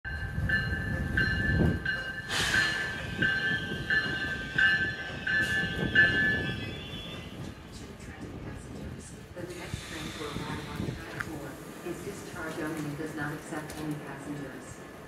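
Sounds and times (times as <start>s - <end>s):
locomotive bell ringing: 0.1s - 7.6s
train rumble: 0.1s - 15.0s.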